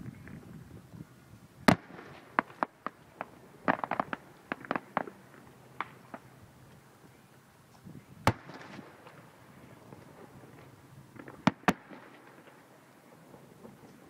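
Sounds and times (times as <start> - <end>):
fireworks pops and reports: 1.6 - 6.3, 7.8 - 9.3, 9.9 - 14.0
fireworks shells bursting: 8.2 - 9.3.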